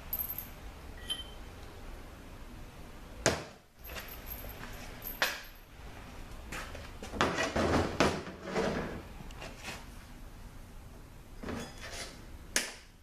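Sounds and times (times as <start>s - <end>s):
metal parts clinking on workbench: 0.1s - 1.4s.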